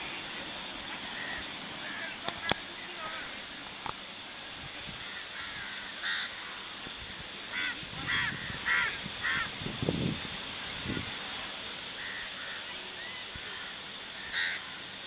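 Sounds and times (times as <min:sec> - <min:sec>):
steady background hiss: 0:00.0 - 0:15.0
crows cawing: 0:01.0 - 0:02.6, 0:05.0 - 0:09.6, 0:12.0 - 0:15.0.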